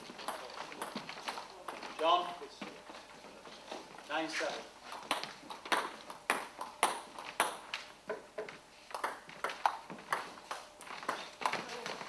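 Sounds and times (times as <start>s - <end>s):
table tennis ball clicks: 5.0s - 11.6s.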